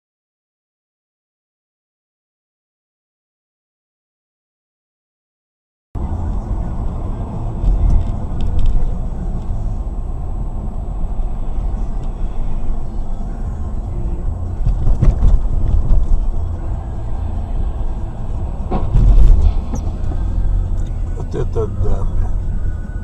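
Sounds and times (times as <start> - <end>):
car road and engine rumble: 6.0 - 23.0.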